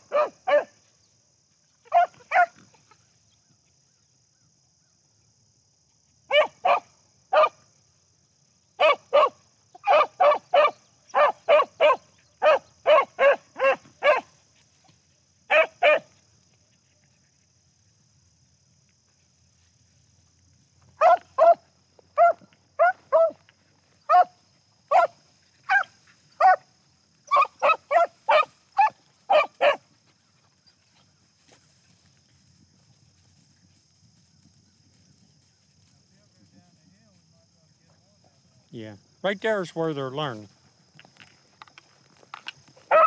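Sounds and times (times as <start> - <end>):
hounds barking: 0.0 - 0.8, 1.8 - 2.7, 6.3 - 7.6, 8.8 - 14.4, 15.5 - 16.2, 20.9 - 31.0.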